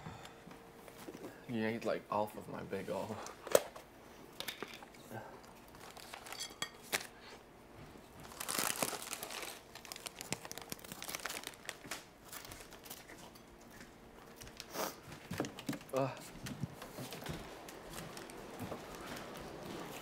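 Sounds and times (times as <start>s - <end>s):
plastic wrapper crinkling: 5.7s - 7.1s, 8.2s - 13.2s.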